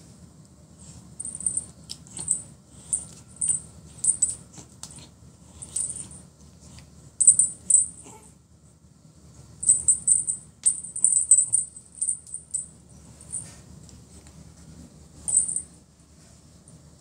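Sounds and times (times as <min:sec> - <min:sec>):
jingle bell jingling: 0:15.3 - 0:15.7.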